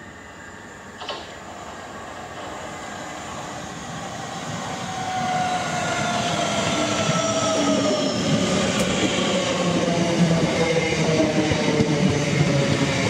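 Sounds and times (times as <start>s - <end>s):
train running noise: 0.0s - 13.0s.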